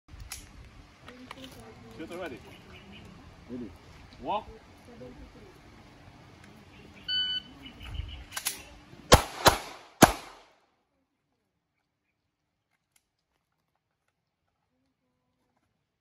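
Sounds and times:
pistol shots: 8.4 - 10.6.

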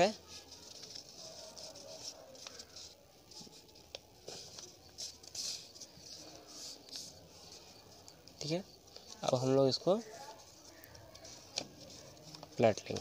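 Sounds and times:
paper rustling: 0.0 - 13.0.

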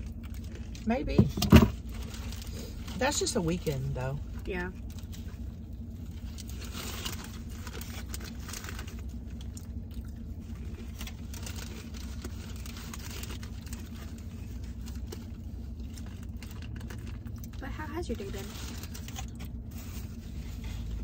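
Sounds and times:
food packaging crinkling: 0.0 - 0.9, 4.8 - 17.6, 18.2 - 21.0
low car hum: 0.0 - 21.0
chips crunched and chewed: 6.2 - 17.6.

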